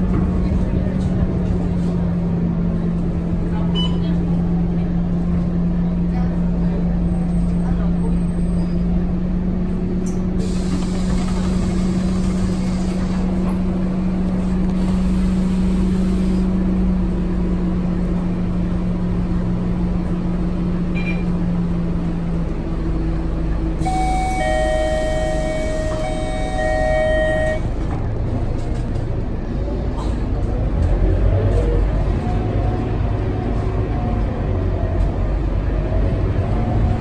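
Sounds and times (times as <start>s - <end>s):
bus diesel engine idling: 0.0s - 30.5s
door closing warning tones: 23.8s - 27.7s.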